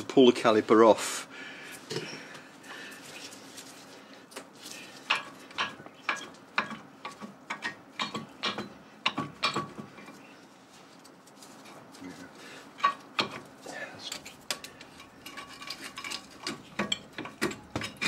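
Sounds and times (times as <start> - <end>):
sharp metallic clicks and knocks: 5.1 - 10.0.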